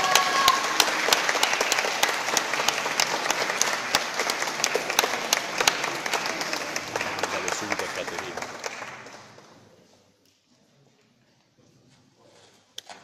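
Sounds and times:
small group clapping: 0.0 - 9.7.

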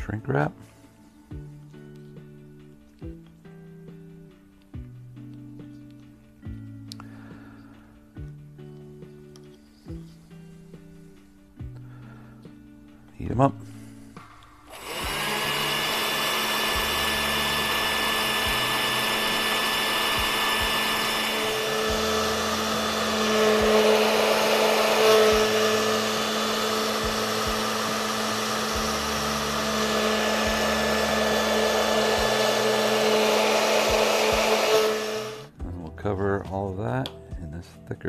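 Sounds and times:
hair dryer blowing: 14.2 - 35.6.

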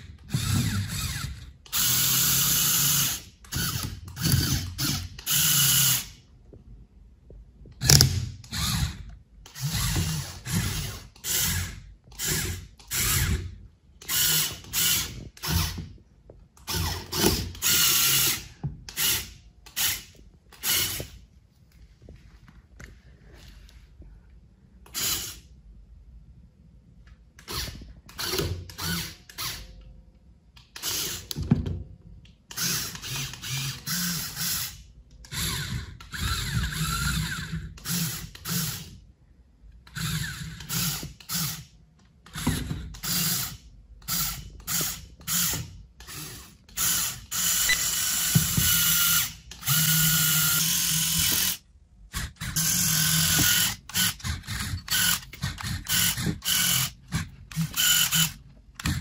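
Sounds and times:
electric motors and plastic gears: 0.0 - 6.2, 7.7 - 16.0, 16.6 - 21.3, 24.8 - 25.5, 27.4 - 29.8, 30.6 - 31.6, 32.5 - 39.0, 39.8 - 59.0.

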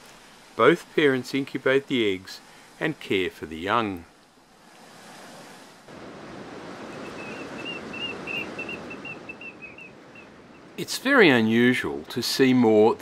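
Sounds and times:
surf breaking on rocks: 4.8 - 9.6.

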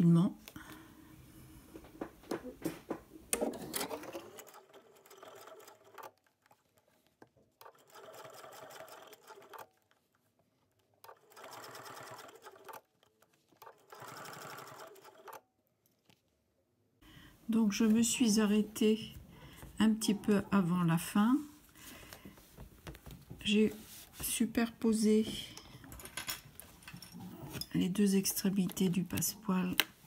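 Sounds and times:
sewing machine stitching: 3.3 - 6.9, 7.6 - 10.1, 11.0 - 15.4.

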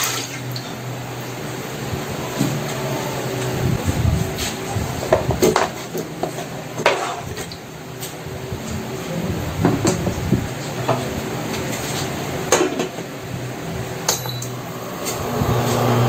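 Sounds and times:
steady low hum: 0.6 - 16.0.

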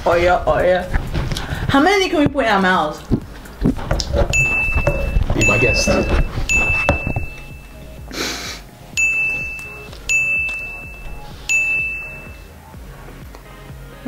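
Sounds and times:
high bell-like ding: 4.3 - 7.8, 9.0 - 12.4.

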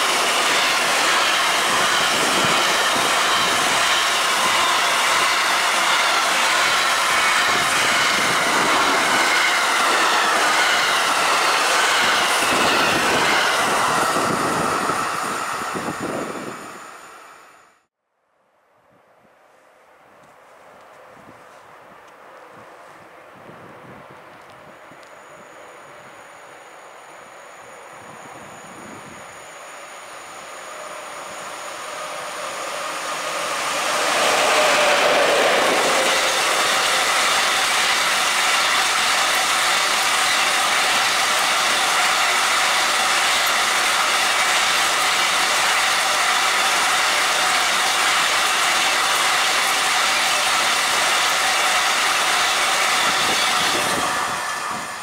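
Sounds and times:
freight train passing: 0.0 - 17.9, 22.1 - 55.0
wheels clattering on rails: 31.6 - 55.0.

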